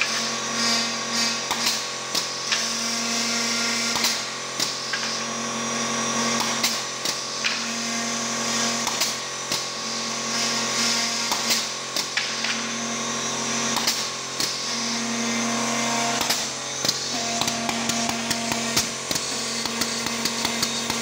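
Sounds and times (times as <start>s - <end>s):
drilling machine motor hum: 0.0s - 21.0s
drilling tone: 14.6s - 21.0s.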